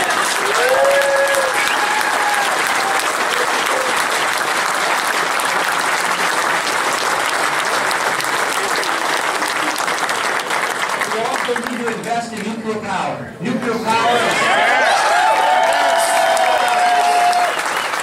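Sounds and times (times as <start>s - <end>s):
held shouts of cheer: 0.0s - 4.0s, 13.9s - 17.8s
crowd applauding and cheering: 0.0s - 12.5s, 14.0s - 18.0s.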